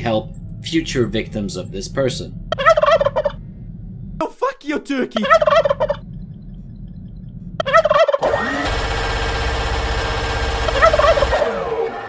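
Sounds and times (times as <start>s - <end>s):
turkey gobbling: 2.5s - 3.4s, 5.2s - 6.0s, 7.6s - 8.2s, 10.7s - 11.4s
rapid gunfire: 8.4s - 11.6s.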